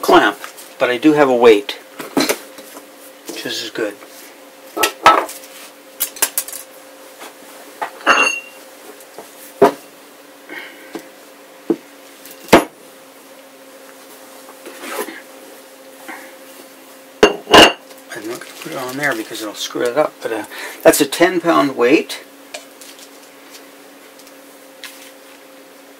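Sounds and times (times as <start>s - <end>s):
objects knocking on a worktable: 9.6s - 9.8s.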